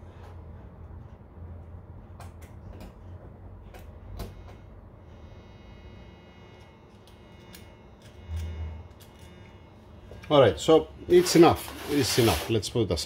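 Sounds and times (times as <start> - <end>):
steel pick scraping metal: 11.1 - 12.6.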